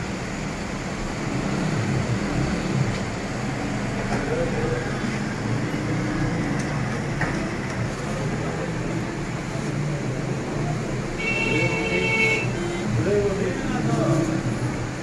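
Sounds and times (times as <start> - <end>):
street background noise: 0.0 - 15.0
faint indistinct voices: 3.6 - 15.0.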